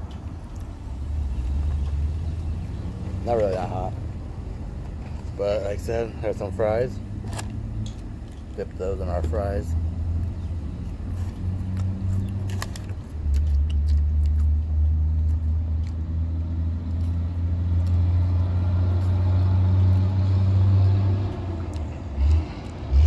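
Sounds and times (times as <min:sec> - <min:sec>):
motor vehicle rumbling: 0:00.0 - 0:23.0
fries being chewed: 0:10.8 - 0:23.0.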